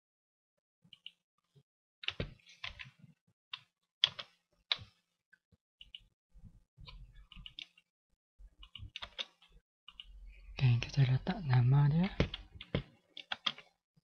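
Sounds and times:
keyboard keystrokes: 8.6s - 10.1s, 12.0s - 13.7s.

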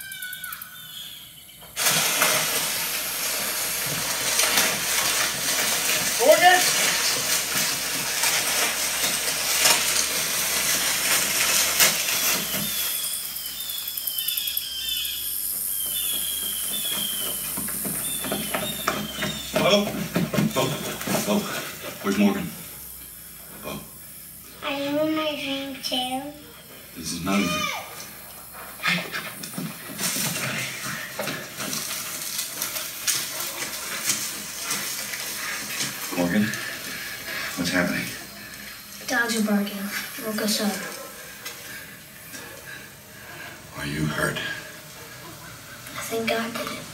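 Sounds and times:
rustling of corn stalks: 1.8s - 13.8s, 15.7s - 22.5s, 28.1s - 46.9s
short high falling chirps: 12.4s - 19.5s.

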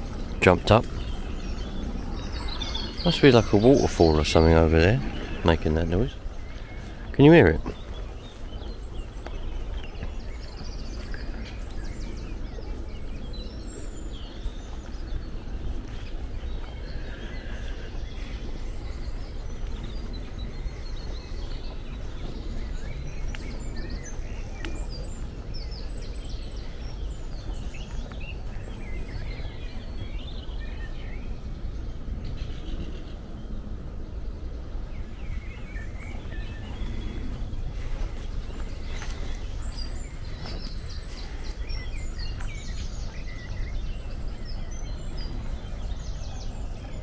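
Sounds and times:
birds chirping: 0.0s - 47.0s.

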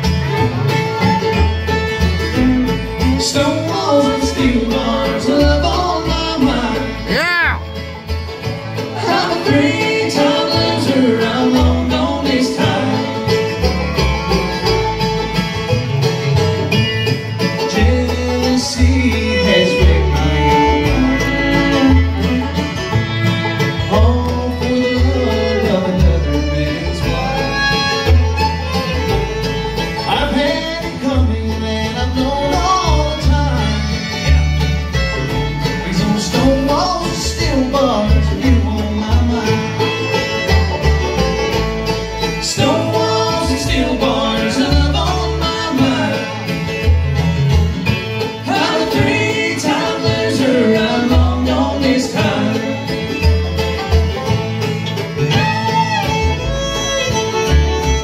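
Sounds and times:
acoustic guitars: 0.0s - 58.0s
banjo: 0.0s - 58.0s
mandolin picking: 0.0s - 58.0s
upright bass plucking: 0.0s - 58.0s.

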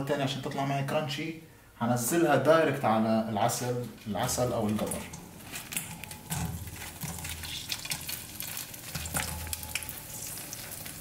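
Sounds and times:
hot oil sizzling and crackling: 3.6s - 11.0s.

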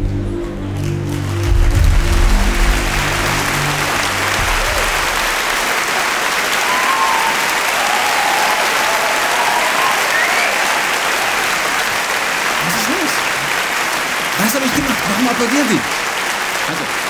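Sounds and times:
low background music: 0.0s - 5.7s
audience applauding: 0.6s - 17.0s.

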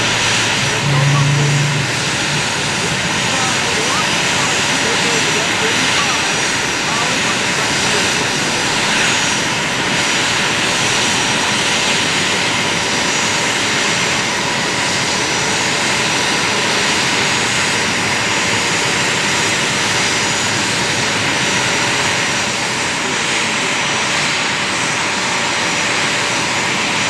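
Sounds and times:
high whining tones: 0.0s - 9.5s
jet engines running: 0.0s - 27.0s.

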